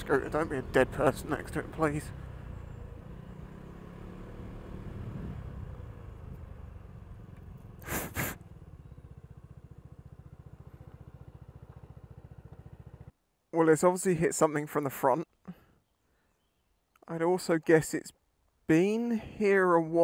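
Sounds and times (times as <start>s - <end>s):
scooter engine running and idling: 5.5s - 13.1s
short bursts of engine noise: 7.4s - 13.1s.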